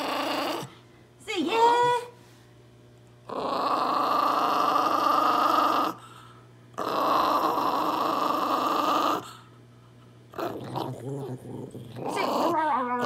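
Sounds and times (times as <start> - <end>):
small dog growling: 0.0 - 0.8, 3.2 - 9.5, 10.3 - 13.0.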